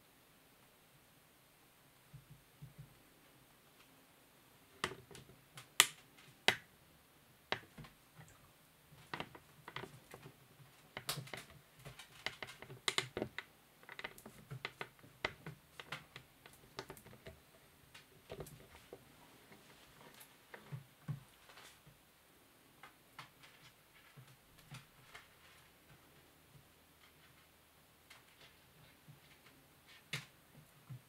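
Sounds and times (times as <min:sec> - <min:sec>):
claws tapping on tabletop: 0:04.8 - 0:06.7, 0:07.5 - 0:07.9, 0:09.0 - 0:17.4.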